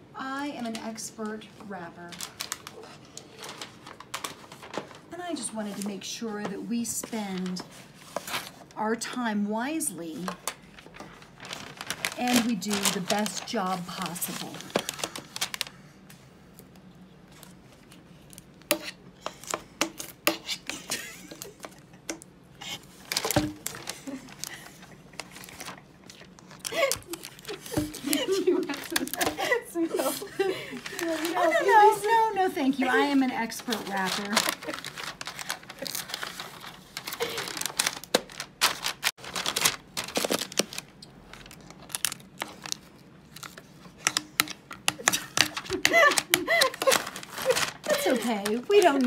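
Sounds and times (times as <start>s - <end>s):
wrapping paper crinkling: 0.6s - 6.0s, 10.0s - 16.0s, 22.6s - 49.0s.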